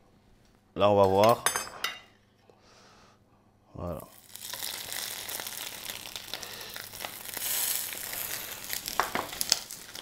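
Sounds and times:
chicken sizzling in frying pan: 4.1s - 10.0s.

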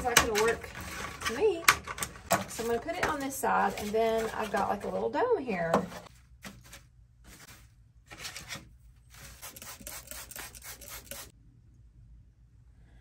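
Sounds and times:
dry moss crackling and rustling: 2.5s - 5.3s.

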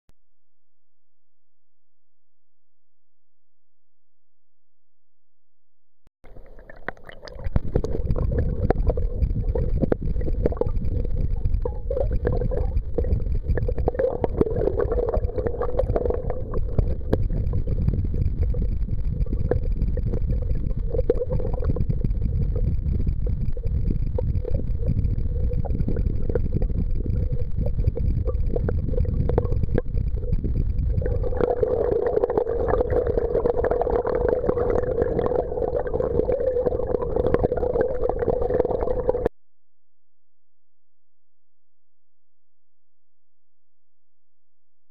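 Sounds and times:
river current rumbling and gurgling: 6.2s - 39.3s
steady mid-pitched hum: 6.3s - 39.3s.

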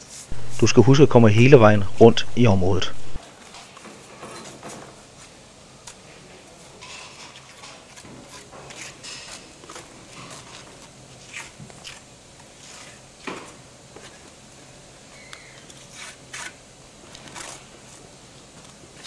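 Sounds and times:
trowel scraping mortar: 7.3s - 12.0s.

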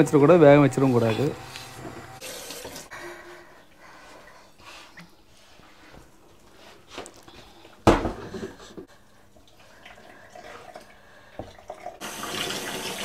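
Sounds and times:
tap water running into pan: 1.0s - 2.9s, 9.5s - 13.0s.

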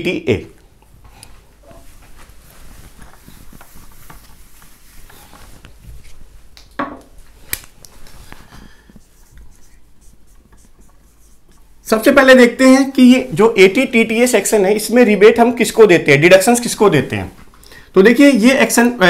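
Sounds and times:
duster rubbing whiteboard: 8.9s - 11.6s
marker squeaking on whiteboard: 9.1s - 11.7s.

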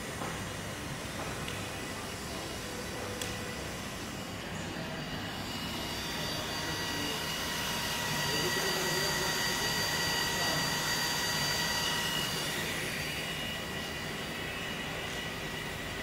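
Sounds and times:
hot-air welding machine whining: 0.0s - 16.0s.

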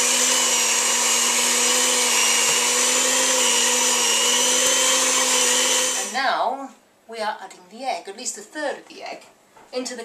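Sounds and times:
electric mixer whine: 0.0s - 6.2s.

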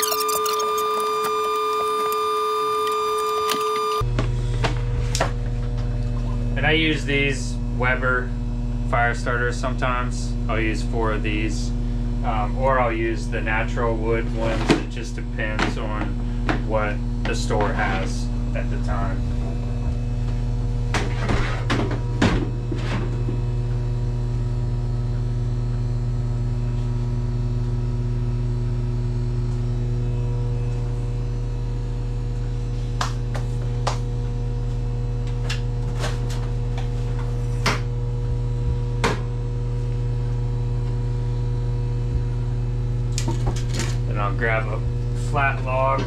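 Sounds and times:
electrical hum: 0.0s - 46.0s.

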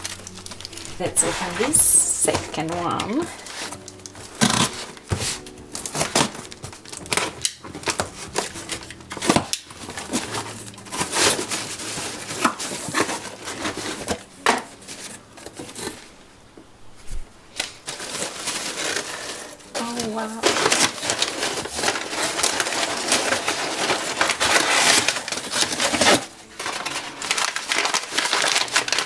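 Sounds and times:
tissue paper rustling: 0.0s - 16.2s, 17.0s - 29.0s
cutter slitting packing tape: 3.4s - 5.0s, 17.6s - 19.6s, 20.5s - 29.0s.

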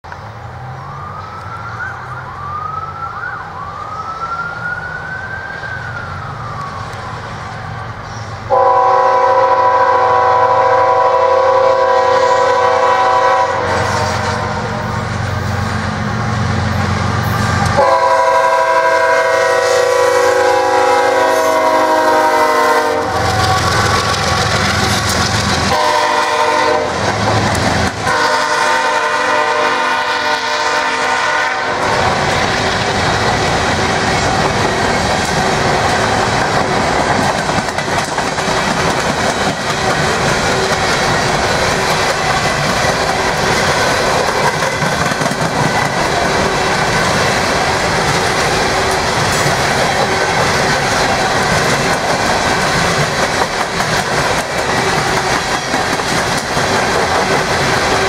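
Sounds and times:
diesel locomotive engines rumbling: 0.0s - 58.0s
high rising squeals: 0.7s - 8.4s
locomotive air horn: 8.5s - 15.0s, 17.4s - 24.6s, 25.7s - 27.1s, 28.0s - 32.2s.

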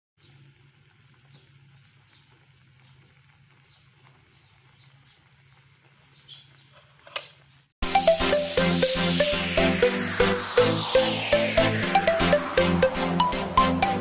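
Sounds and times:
broth bubbling and crackling: 0.2s - 6.3s.

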